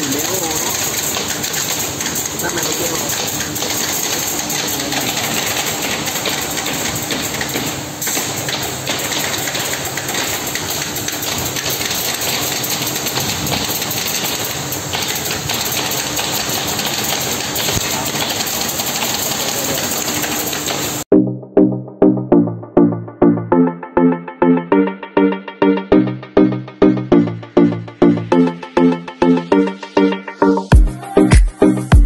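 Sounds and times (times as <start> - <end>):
woodworking machinery running: 0.0 - 21.1.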